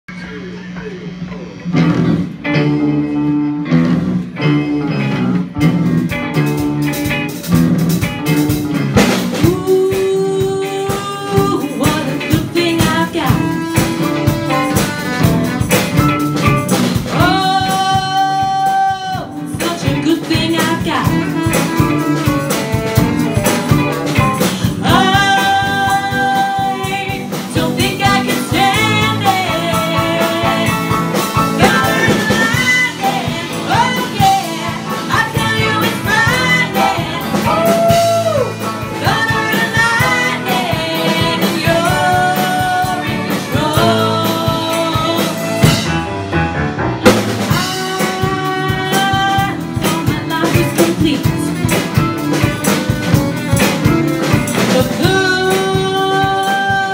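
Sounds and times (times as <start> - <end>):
live pop-rock band playing: 0.1 - 56.9
women singing long notes: 17.2 - 45.6, 54.8 - 56.9.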